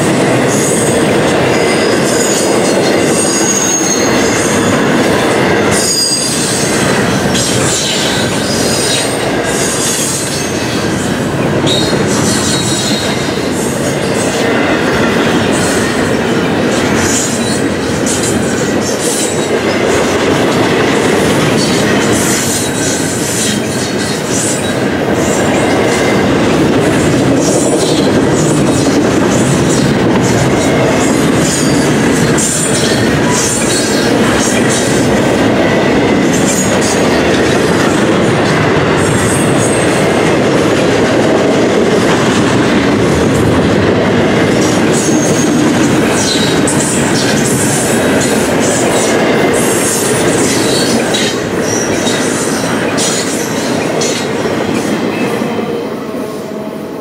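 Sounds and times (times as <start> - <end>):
steel wheels rumbling on rail: 0.0 - 57.0
high wheel squeals: 3.2 - 4.7, 5.8 - 10.8.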